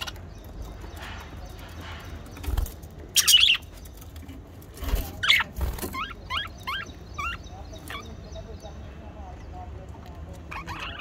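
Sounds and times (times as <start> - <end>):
parrots chirping: 0.0 - 4.1, 5.0 - 8.8, 10.4 - 11.0.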